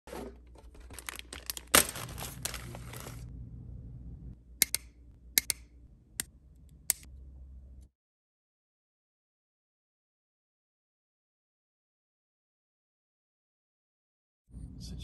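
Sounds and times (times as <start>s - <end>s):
plastic packaging crinkling: 0.5s - 3.3s.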